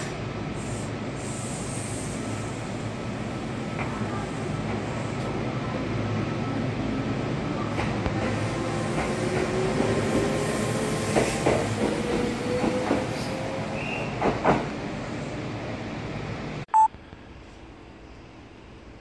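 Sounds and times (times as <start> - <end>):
train running noise: 7.5 - 15.3.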